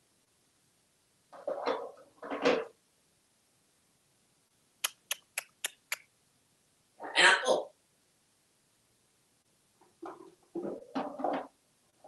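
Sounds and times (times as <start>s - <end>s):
parrot clicking: 4.8s - 6.1s
parrot vocal sounds: 7.0s - 7.7s.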